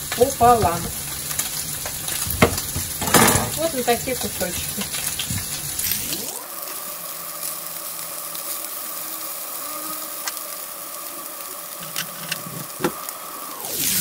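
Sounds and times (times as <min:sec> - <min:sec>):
pork sizzling in a frying pan: 0:00.0 - 0:14.0.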